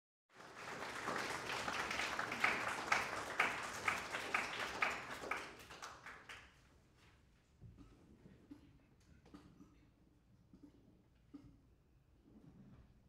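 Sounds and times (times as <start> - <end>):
small audience applauding: 0.3 - 6.7
person clapping nearby: 0.4 - 6.6.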